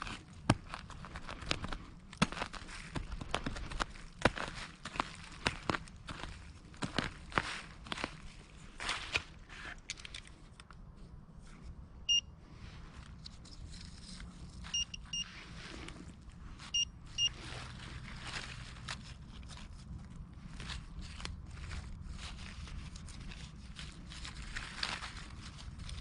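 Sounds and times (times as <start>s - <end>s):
soil and dry leaves rustling: 0.0s - 26.0s
metal detector short beeps: 12.1s - 12.3s, 14.7s - 15.3s, 16.7s - 17.4s.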